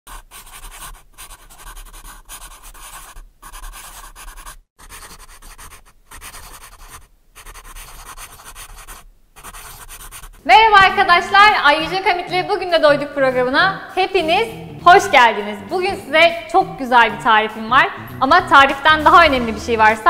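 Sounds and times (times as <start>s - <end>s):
pen scribbling on paper: 0.1s - 10.4s.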